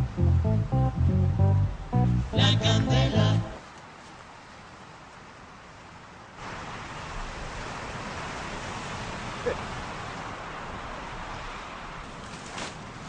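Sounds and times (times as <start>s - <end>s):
waves breaking: 3.9s - 13.0s.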